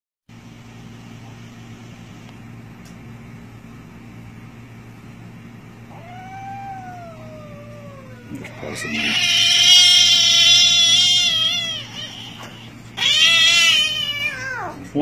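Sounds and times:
kitten crying in pain: 5.9s - 14.8s.

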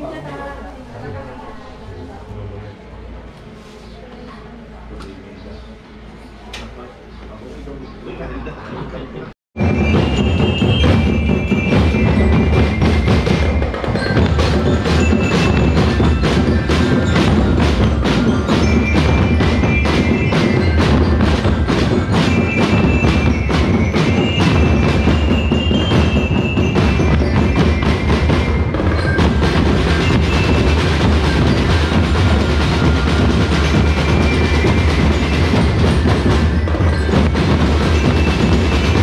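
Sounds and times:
drum band playing: 9.6s - 39.0s
high ringing tones: 9.6s - 39.0s.

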